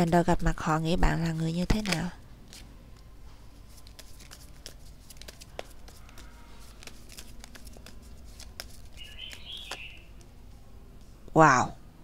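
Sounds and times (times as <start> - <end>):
cards being shuffled: 1.2 - 10.4.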